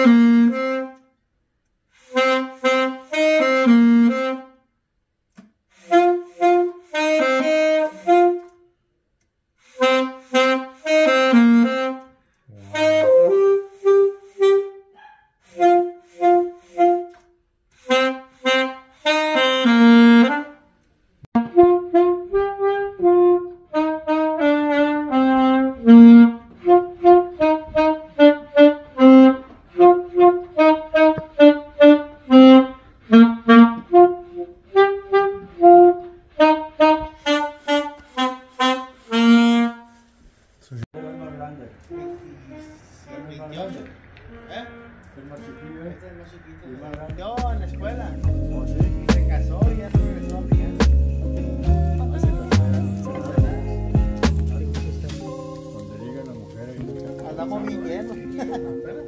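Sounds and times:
solo wind instrument tune: 0.0s - 1.1s, 2.1s - 4.6s, 5.8s - 8.6s, 9.8s - 14.9s, 15.5s - 20.6s, 21.4s - 40.1s, 41.0s - 43.7s, 55.1s - 59.0s.

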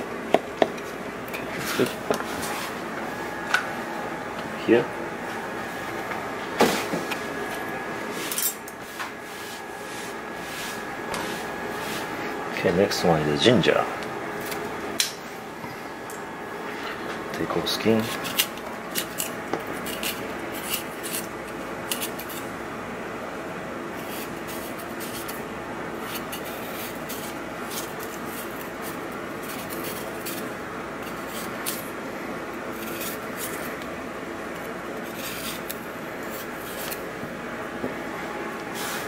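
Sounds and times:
steady background hum: 0.0s - 39.0s
knife scraping ginger skin: 18.0s - 22.4s, 24.0s - 25.4s, 26.0s - 31.9s, 32.7s - 33.8s, 34.6s - 37.1s.

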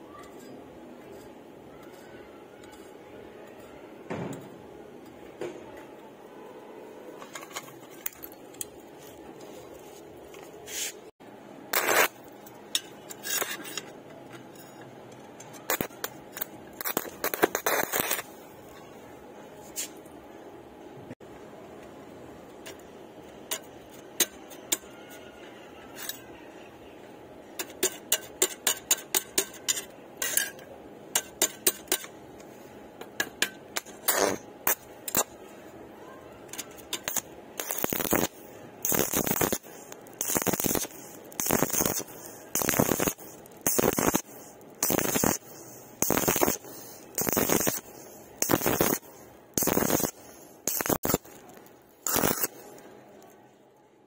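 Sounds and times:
welding arc crackling: 11.7s - 12.4s, 15.6s - 18.4s, 33.2s - 35.4s, 36.5s - 53.4s
electrode tapping on steel: 27.5s - 35.4s, 36.5s - 52.5s.

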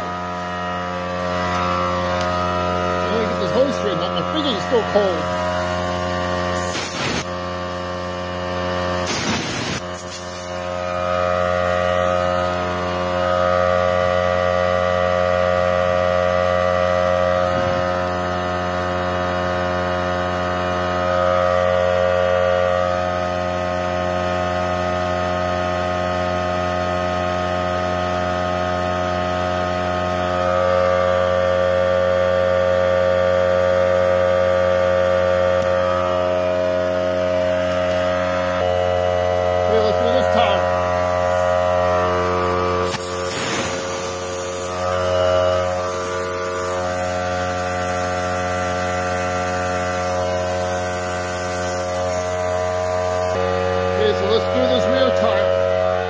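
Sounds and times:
air compressor pump running: 0.0s - 56.0s
air hissing: 5.0s - 7.4s, 8.9s - 11.0s, 42.2s - 53.4s.

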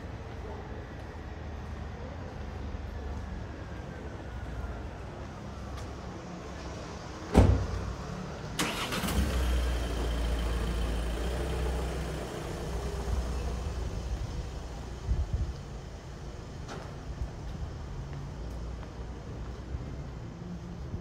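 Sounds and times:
vehicle engine rumbling: 6.5s - 21.0s.

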